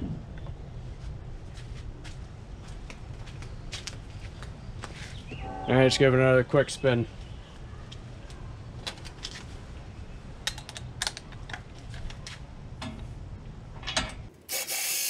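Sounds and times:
low rumble: 5.3s - 7.7s
cordless drill whirring: 14.5s - 15.0s.

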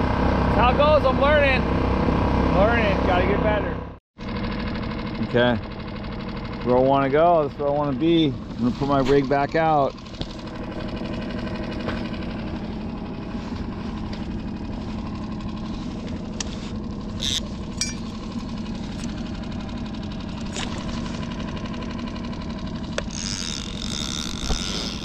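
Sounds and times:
small outboard motor running: 0.0s - 25.0s
fishing reel clicks: 17.2s - 17.5s, 23.0s - 25.0s.

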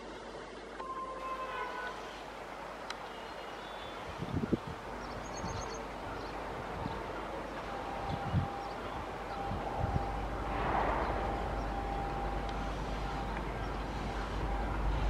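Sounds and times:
faint steady high tone: 0.8s - 2.4s, 5.4s - 15.0s
train approaching rumble: 3.4s - 15.0s.

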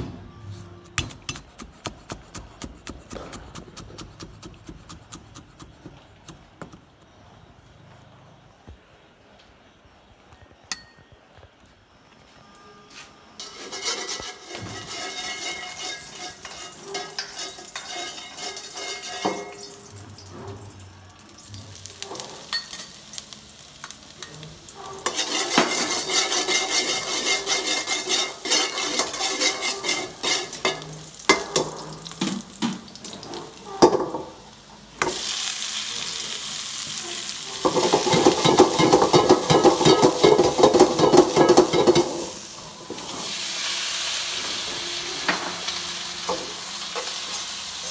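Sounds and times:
metal spatula scraping wok: 13.3s - 20.8s, 24.2s - 32.2s, 37.3s - 43.4s
food sizzling in oil: 13.4s - 47.9s.

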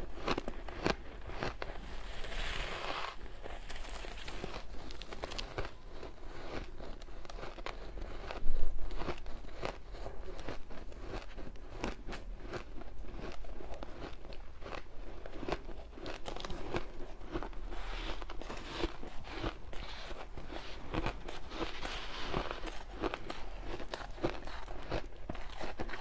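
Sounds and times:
hands scooping shaved ice: 0.0s - 8.2s, 15.4s - 26.0s
shaved ice crunching: 0.2s - 6.7s.

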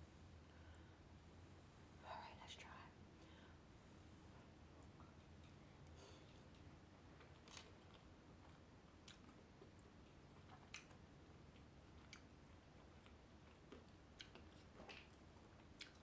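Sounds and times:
soft chewing: 2.6s - 16.0s.

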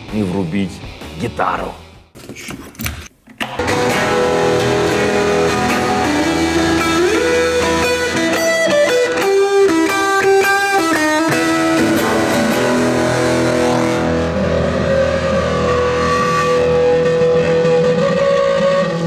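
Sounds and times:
electric guitar melody: 3.4s - 19.0s.

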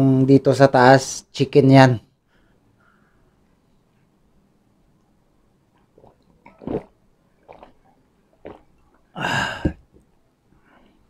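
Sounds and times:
man gulping a drink: 5.7s - 10.2s
breathy voiced exhale: 9.2s - 9.8s.

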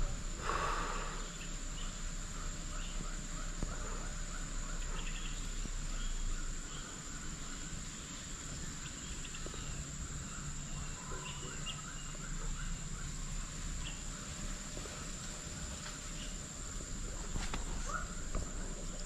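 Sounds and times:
rapidly pulsing insect chirping: 0.0s - 19.0s.

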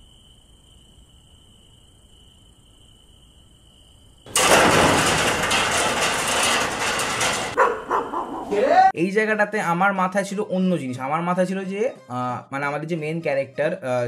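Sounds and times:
night insects chirring: 0.0s - 4.3s.

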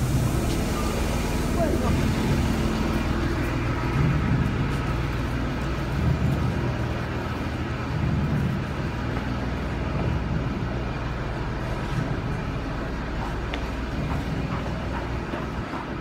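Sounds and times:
bus engines idling: 0.0s - 16.0s.

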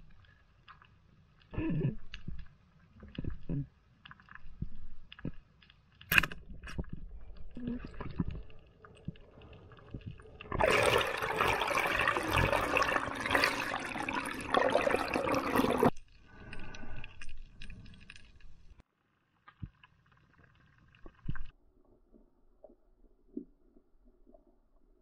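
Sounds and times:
faint underwater sound: 0.0s - 25.0s
water rushing and bubbling: 6.8s - 18.8s.

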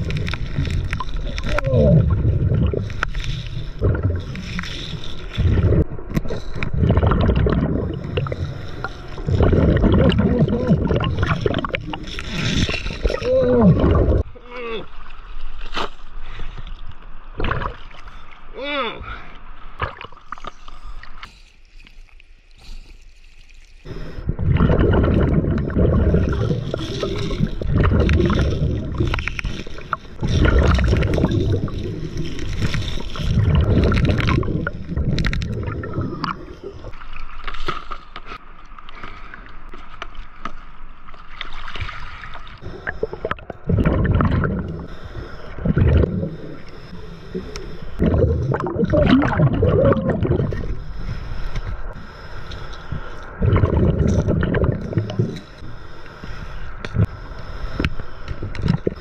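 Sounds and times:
bubbles gurgling underwater: 0.0s - 14.2s, 23.9s - 37.0s, 42.2s - 44.9s, 45.5s - 46.6s, 48.0s - 50.8s, 53.4s - 55.4s
diver breathing through regulator: 42.6s - 43.7s, 44.6s - 48.8s, 50.2s - 59.0s.

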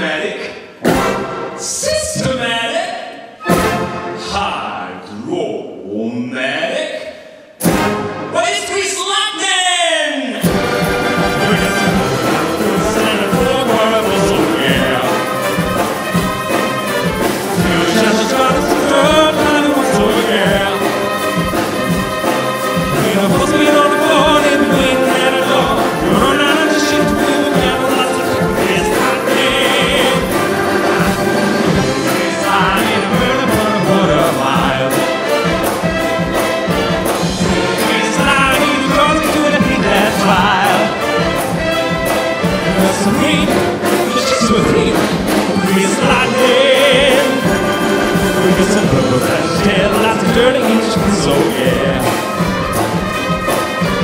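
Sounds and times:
wind band playing rock and roll: 0.8s - 2.3s, 3.4s - 4.6s, 7.6s - 8.9s, 10.3s - 54.0s
man singing: 11.2s - 15.9s, 16.5s - 52.5s.

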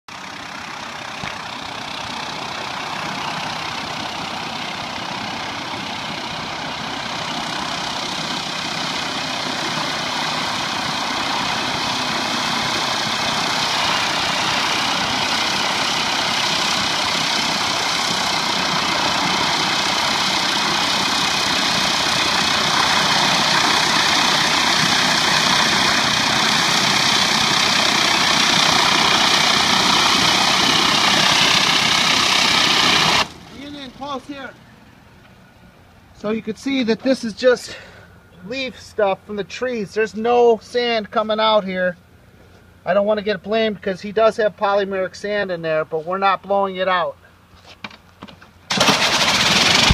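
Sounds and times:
pressure washer engine running: 0.1s - 34.9s, 48.7s - 49.9s
high-pressure spray hissing: 7.2s - 33.3s.

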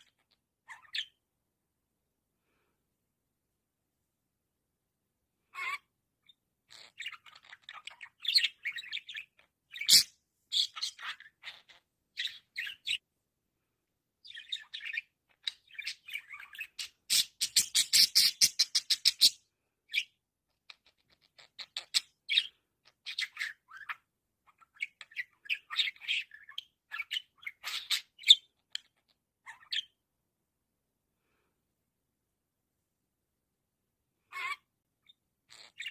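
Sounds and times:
budgerigar chattering: 6.7s - 13.0s.

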